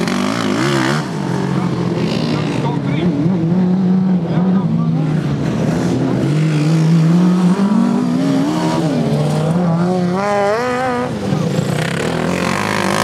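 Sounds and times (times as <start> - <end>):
lawn mower engines racing: 0.0 - 13.0.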